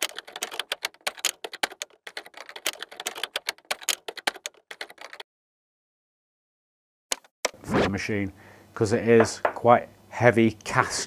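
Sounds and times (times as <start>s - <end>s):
typing key clicks: 0.0s - 5.2s.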